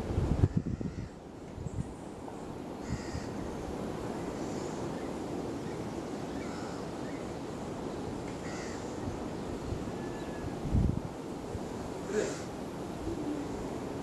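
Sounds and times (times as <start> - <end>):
wind rumbling on microphone: 0.0 - 14.0.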